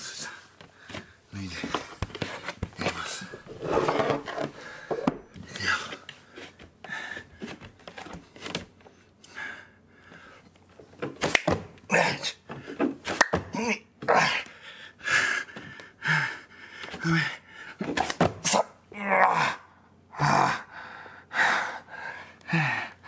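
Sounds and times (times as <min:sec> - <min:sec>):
palms slapping wooden floor: 0:10.9 - 0:11.8
hard breathing and grunts: 0:11.9 - 0:23.0.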